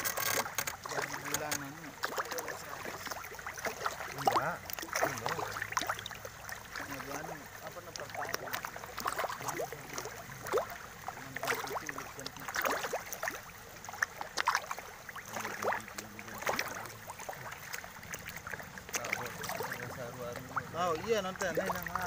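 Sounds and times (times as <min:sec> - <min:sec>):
pond water splashing: 0:00.0 - 0:22.0
bubbly pops: 0:07.9 - 0:13.4.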